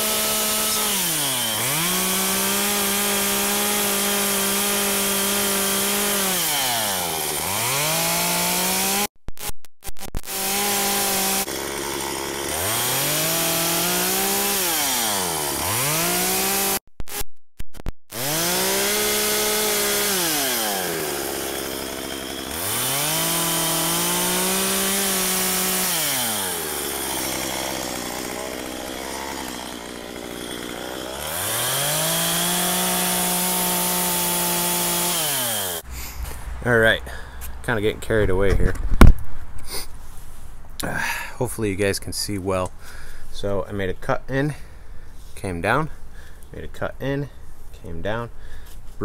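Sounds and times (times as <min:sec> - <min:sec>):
chainsaw cutting wood: 0:00.0 - 0:09.5, 0:10.2 - 0:17.2, 0:18.1 - 0:37.6.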